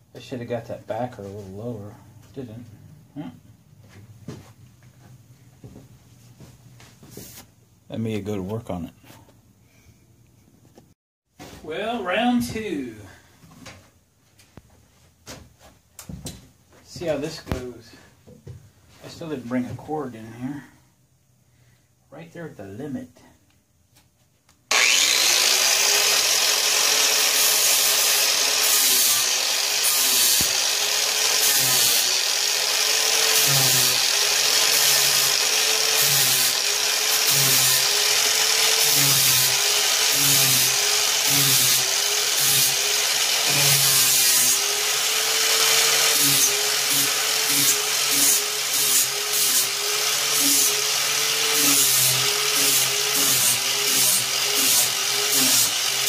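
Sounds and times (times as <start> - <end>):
angle grinder motor whine: 24.7 - 56.0.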